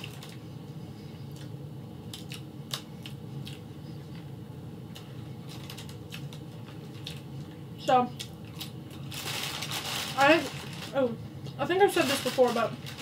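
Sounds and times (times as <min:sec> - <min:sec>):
low steady hum: 0:00.0 - 0:13.0
chips crackling when handled: 0:08.2 - 0:11.1, 0:11.7 - 0:13.0.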